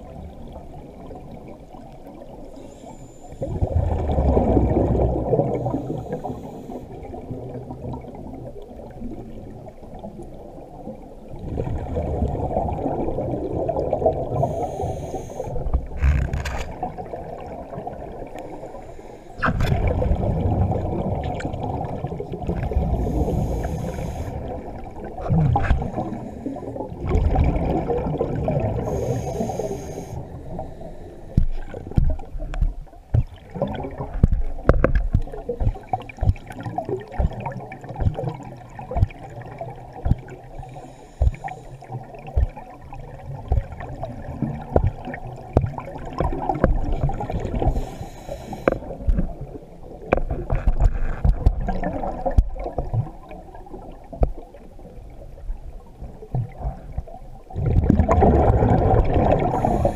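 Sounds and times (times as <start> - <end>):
diver's air bubbling underwater: 3.4 - 6.3, 19.4 - 48.0, 48.7 - 54.9, 55.9 - 59.9.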